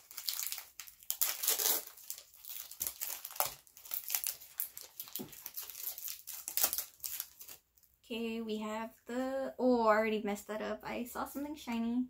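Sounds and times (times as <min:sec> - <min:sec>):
foil wrapper crinkling: 0:00.0 - 0:07.9.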